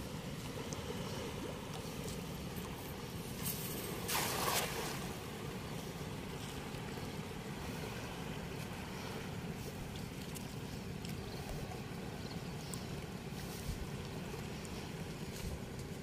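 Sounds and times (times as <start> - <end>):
water rushing through weir: 0.0 - 12.0
faint ticks: 9.8 - 16.0.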